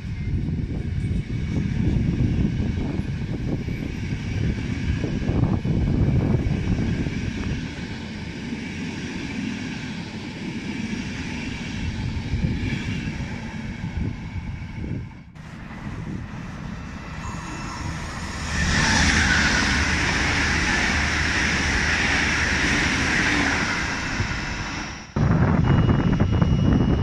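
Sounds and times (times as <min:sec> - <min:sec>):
train coaches rolling on rails: 0:15.4 - 0:25.2.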